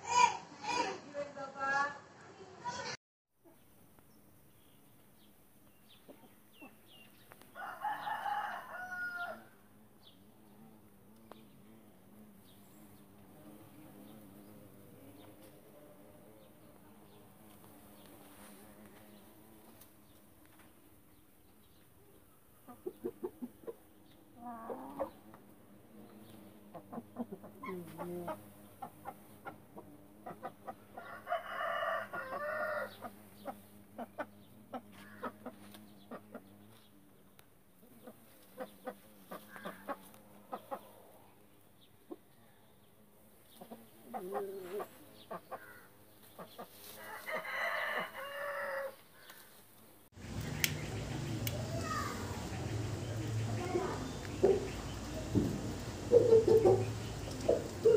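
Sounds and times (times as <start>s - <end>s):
rooster clucking and calling: 7.6s - 9.6s, 26.7s - 36.4s, 43.7s - 45.7s, 46.4s - 49.0s, 56.0s - 57.9s.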